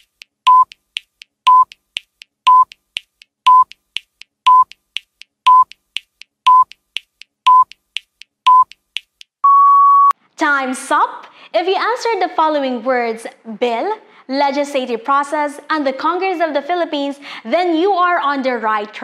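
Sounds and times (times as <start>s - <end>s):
longer higher beep: 0.5s - 0.8s, 1.5s - 1.8s, 2.5s - 2.8s, 3.5s - 3.7s, 4.5s - 4.7s, 5.5s - 5.7s, 9.4s - 10.2s
short electronic beeps: 0.5s - 0.8s, 1.5s - 1.8s, 2.5s - 2.8s, 3.5s - 3.8s, 4.5s - 4.8s, 5.5s - 5.8s, 6.5s - 6.8s, 7.5s - 7.8s, 8.5s - 8.8s, 9.4s - 10.2s.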